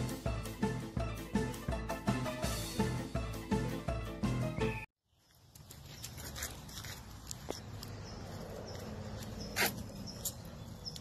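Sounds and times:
music: 0.0s - 4.9s.

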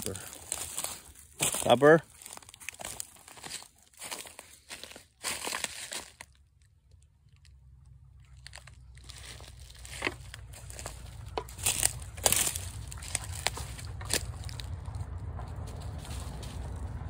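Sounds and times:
dry leaves crackling and rustling: 0.0s - 6.4s, 8.3s - 17.0s
low rumble: 6.6s - 17.0s.

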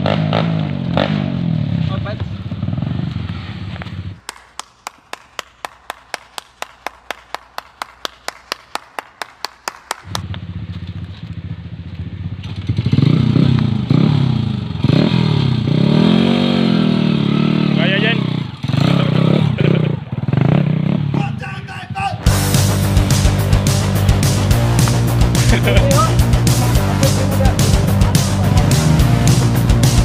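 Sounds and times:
dirt bike engine revving: 0.0s - 4.2s, 10.1s - 21.4s, 22.2s - 30.0s
person clapping: 4.2s - 10.3s, 24.2s - 30.0s.

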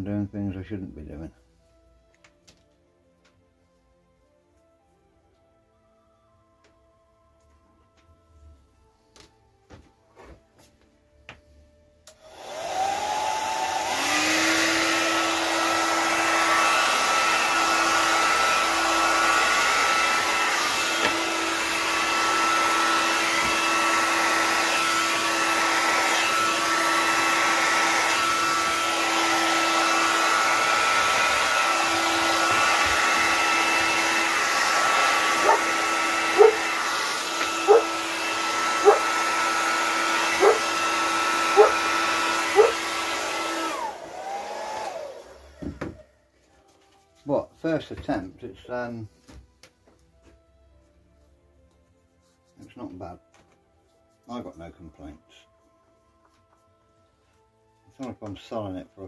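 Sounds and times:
hair dryer blowing with whine: 12.1s - 46.0s.

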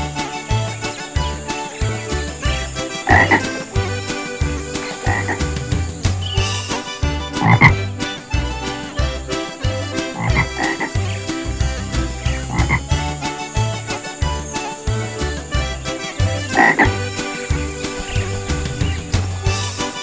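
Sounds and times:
rhythmic low notes and clicks: 0.0s - 20.0s
cartoon frog croaks: 3.0s - 3.5s, 5.0s - 5.4s, 7.4s - 7.8s, 10.2s - 11.0s, 12.4s - 13.0s, 16.5s - 17.0s.

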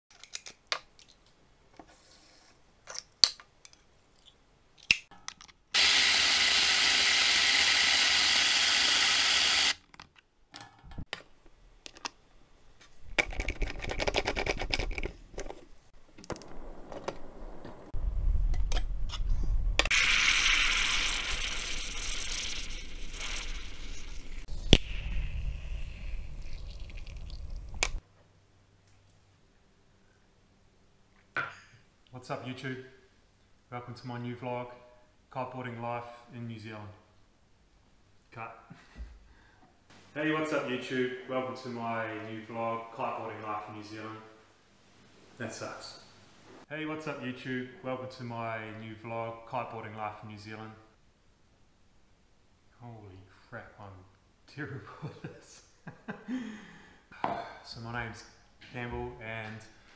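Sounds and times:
steady hiss over low rumble: 14.6s - 19.9s, 23.9s - 38.8s, 39.8s - 59.9s
kitchen tap running: 19.9s - 24.5s.

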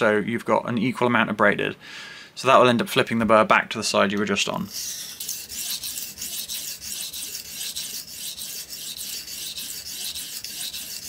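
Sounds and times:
knife scraping on sharpening plate: 4.7s - 11.0s.

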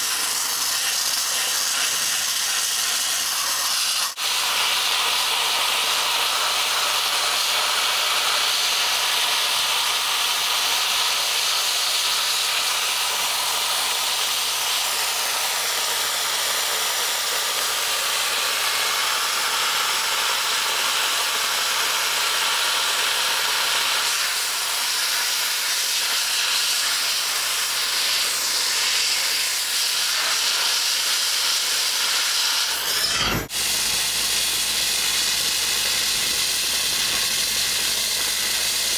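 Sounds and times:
dry-ice blasting gun hissing: 0.0s - 38.9s.

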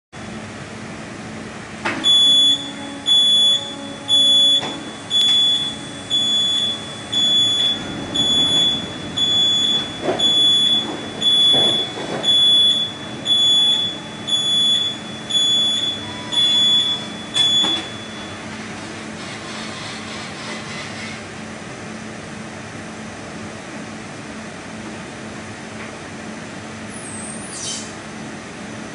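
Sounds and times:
machine hum: 0.2s - 26.7s
high warning beeps: 2.0s - 18.4s.

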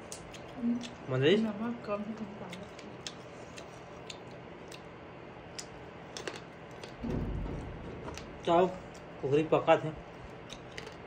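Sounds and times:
mouth chewing clicks: 2.5s - 4.9s.

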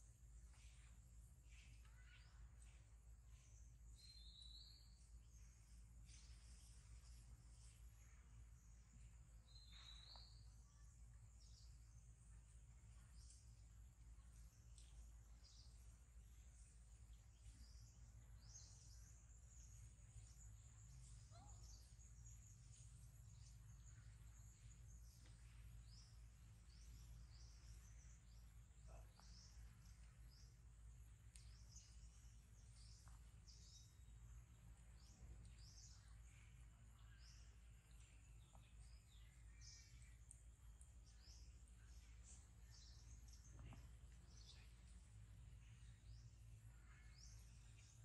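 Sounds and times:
faint bird chirps: 0.0s - 48.0s.

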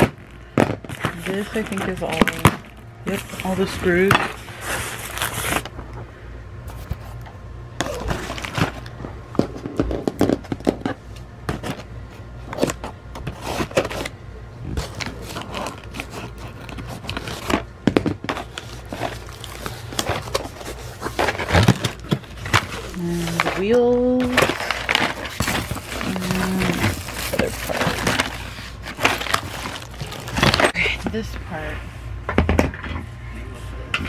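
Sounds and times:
cardboard flaps scraping and crinkling: 0.0s - 5.8s, 11.5s - 14.1s, 14.7s - 30.8s
scissors cutting cardboard: 12.5s - 14.1s, 14.8s - 17.6s.

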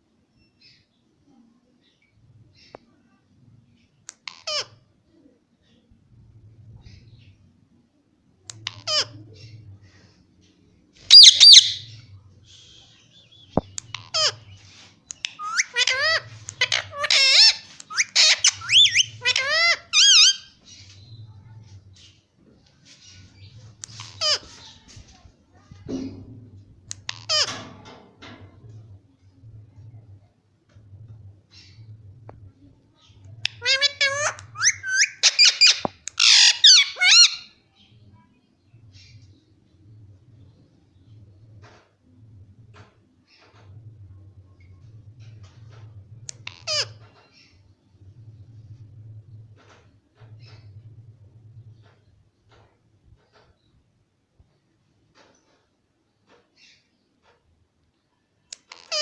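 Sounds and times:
parakeets squawking: 11.1s - 11.9s, 15.2s - 20.6s, 33.4s - 37.5s, 46.4s - 47.5s.

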